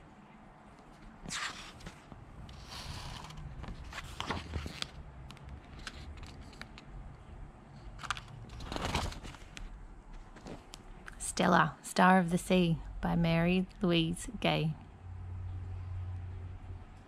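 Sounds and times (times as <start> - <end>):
book pages rustling: 0.8 - 6.9, 7.9 - 10.8.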